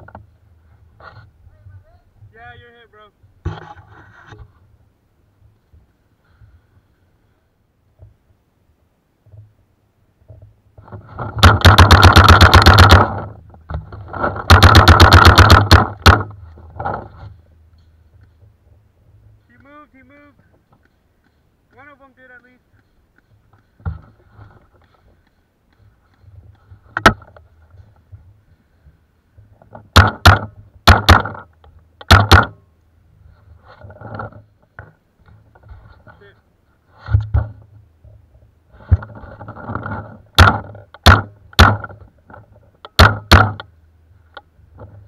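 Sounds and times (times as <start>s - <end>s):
paintball marker firing: 11.4s - 13.2s, 14.4s - 16.3s, 30.0s - 32.6s.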